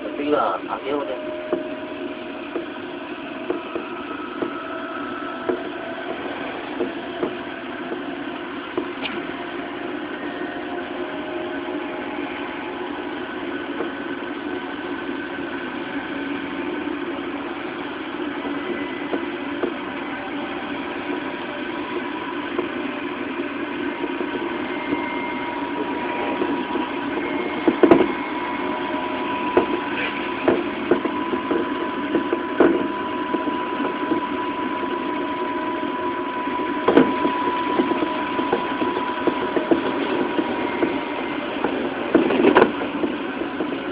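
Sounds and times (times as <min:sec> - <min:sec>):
steady high tone: 0:00.0 - 0:43.9
train motors humming: 0:00.0 - 0:43.9
wheels rumbling on rails: 0:00.0 - 0:43.9
wheels clicking over rails: 0:28.9 - 0:35.1.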